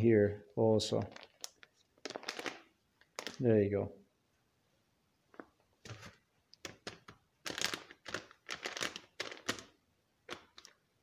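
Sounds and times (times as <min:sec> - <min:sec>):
foil bag crinkling: 0:00.9 - 0:03.4, 0:07.4 - 0:10.8.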